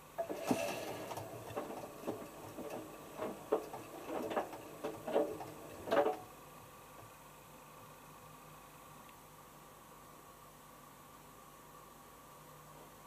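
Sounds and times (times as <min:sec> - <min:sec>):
washing machine drum knocking: 0:00.2 - 0:06.3.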